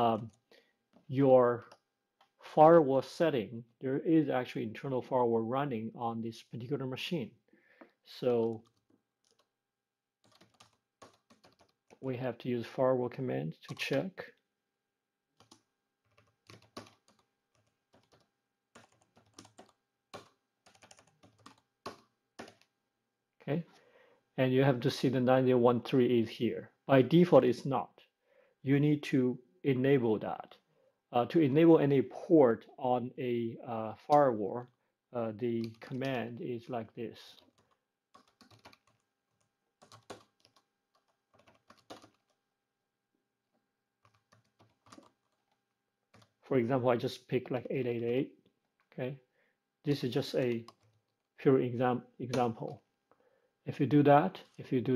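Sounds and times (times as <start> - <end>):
computer keyboard keystrokes: 8.5 - 9.5, 10.2 - 12.0, 15.4 - 22.7, 37.4 - 42.4, 44.0 - 46.4, 50.5 - 51.2.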